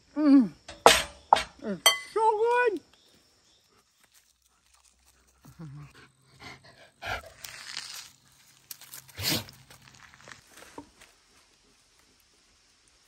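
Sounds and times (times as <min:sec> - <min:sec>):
dog footsteps on gravel: 0:07.2 - 0:11.5.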